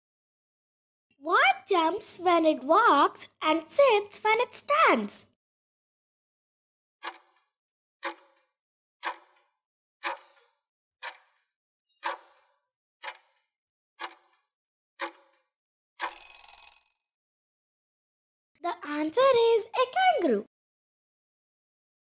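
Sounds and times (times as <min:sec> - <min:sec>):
timer ring: 0:16.0 - 0:17.0.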